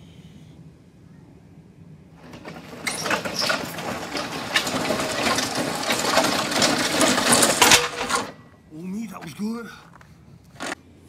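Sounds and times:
steel frame and load rattling: 2.2 - 9.6, 10.5 - 10.8.

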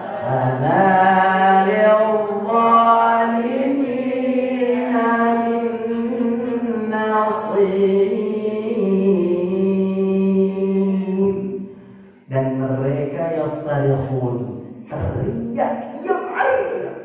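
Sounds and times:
man chanting recitation: 0.0 - 11.7, 12.3 - 17.0.

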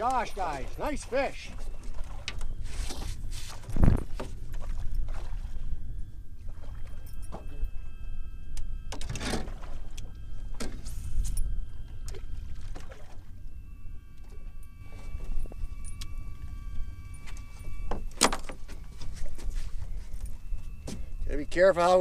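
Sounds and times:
wind on microphone: 1.5 - 22.0
fish splashing: 11.9 - 13.4.

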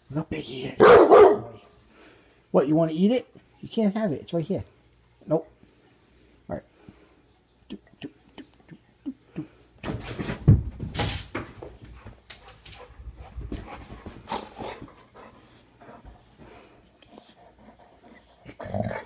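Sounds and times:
paws scuffling: 9.9 - 16.7.

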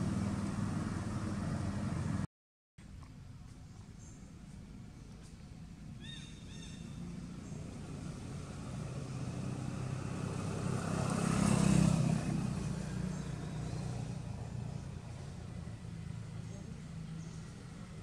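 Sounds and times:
vehicle engine passing by: 0.0 - 2.3, 6.6 - 18.0.

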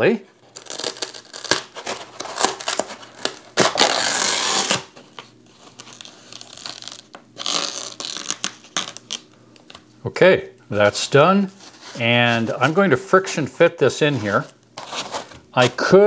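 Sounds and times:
masking tape ripping off: 0.5 - 4.9, 5.8 - 9.3.

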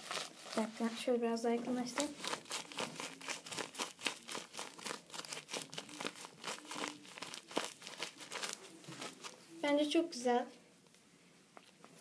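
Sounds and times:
paper crinkling when squeezed: 0.0 - 1.0, 1.8 - 9.5.

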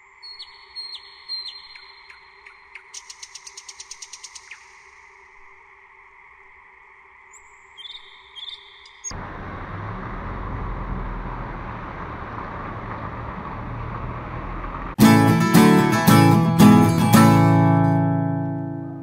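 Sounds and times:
low rumble of traffic: 9.1 - 15.1
strummed acoustic guitar music: 15.0 - 19.0.

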